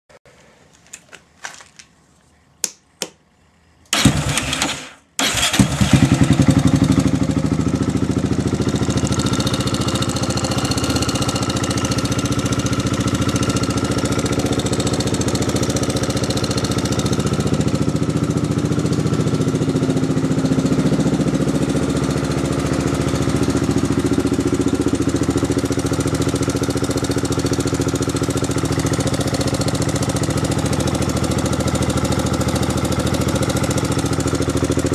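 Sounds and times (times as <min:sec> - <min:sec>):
motorcycle engine starting and idling: 0:03.9 - 0:34.9.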